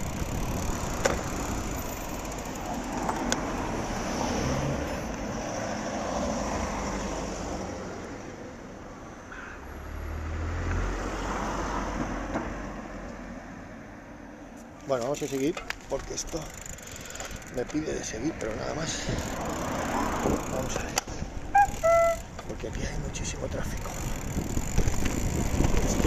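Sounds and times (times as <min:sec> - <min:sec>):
vehicle rumbling past close: 0:00.0 - 0:13.8, 0:18.3 - 0:22.4
passing cars: 0:00.0 - 0:26.0.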